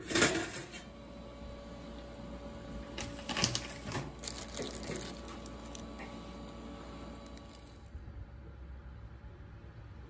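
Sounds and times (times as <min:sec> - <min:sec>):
low steady hum: 0:00.3 - 0:10.0
handling rustles and scrapes: 0:03.0 - 0:06.2.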